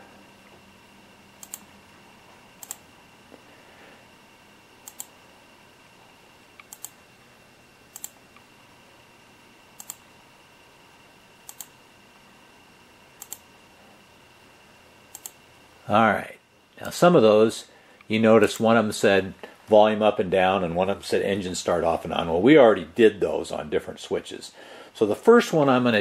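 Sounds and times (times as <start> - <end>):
faint electronic whine: 0.0 - 26.0
computer mouse clicking: 1.4 - 1.7, 2.6 - 2.8, 4.8 - 5.2, 6.6 - 7.0, 7.9 - 8.5, 9.8 - 10.0, 11.4 - 11.8, 13.2 - 13.4, 15.1 - 15.4.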